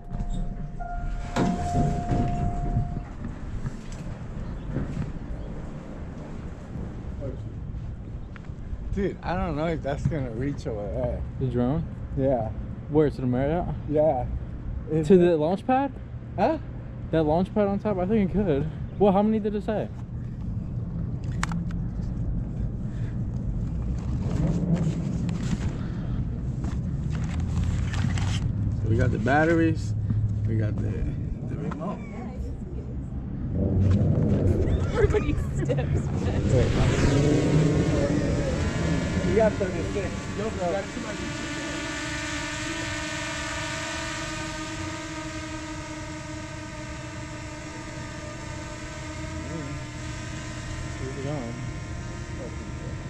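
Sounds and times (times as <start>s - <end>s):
drone propellers whining: 0.0s - 7.2s, 33.0s - 53.0s
wind buffeting microphone: 0.0s - 10.3s, 32.3s - 43.0s.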